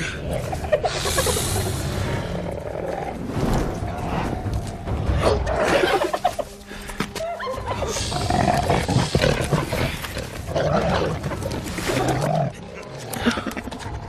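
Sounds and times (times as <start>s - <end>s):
predators snarling and growling: 0.0s - 3.3s, 7.8s - 14.0s.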